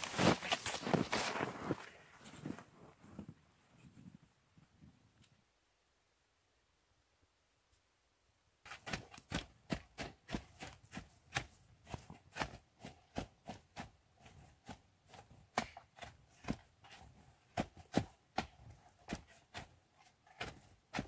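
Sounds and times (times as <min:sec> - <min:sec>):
skis crunching snow: 0:00.0 - 0:03.0.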